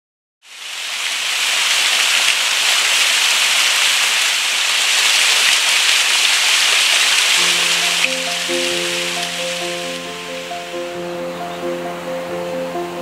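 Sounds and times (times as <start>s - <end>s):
waterfall splashing on rock: 0.5s - 10.5s.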